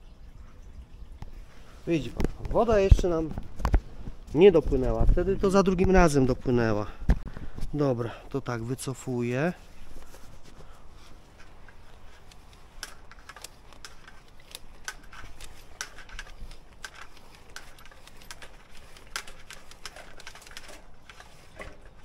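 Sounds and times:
cable clicking and ticking: 11.3 - 22.0.

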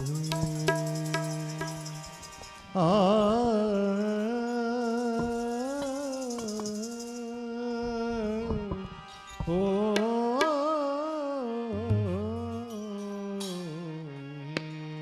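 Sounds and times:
man singing: 0.0 - 2.0, 2.7 - 15.0
tabla strokes: 0.0 - 2.6
metallic shimmer: 0.0 - 2.8
harmonium: 0.0 - 15.0.

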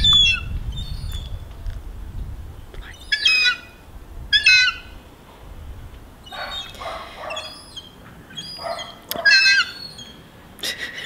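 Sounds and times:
seagulls calling: 2.9 - 5.0, 6.2 - 10.3.

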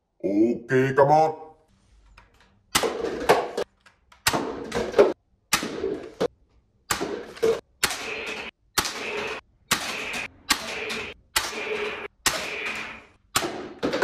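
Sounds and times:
toy dart blaster shots: 6.9 - 14.0.

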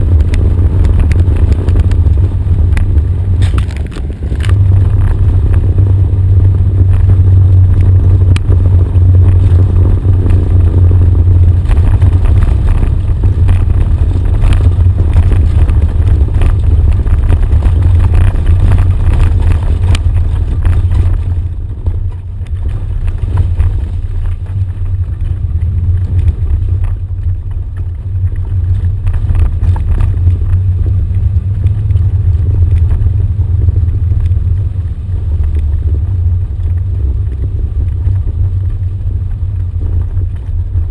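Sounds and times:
low engine drone: 0.0 - 40.9
rattles and gravel knocks: 0.1 - 5.9, 6.8 - 40.9.

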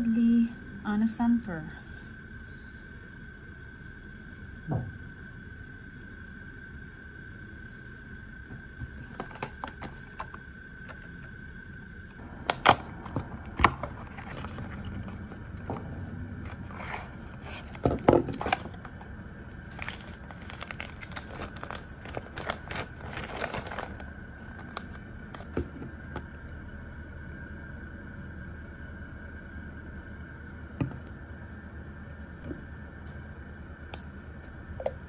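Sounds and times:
paper packaging crinkling: 12.6 - 15.7, 16.5 - 19.0, 19.6 - 25.4.

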